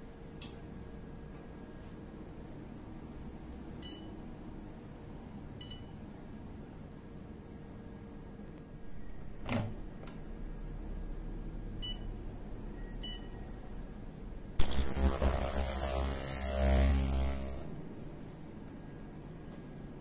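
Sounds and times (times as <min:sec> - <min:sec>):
high-pitched whine over a buzz: 0:14.6 - 0:17.8.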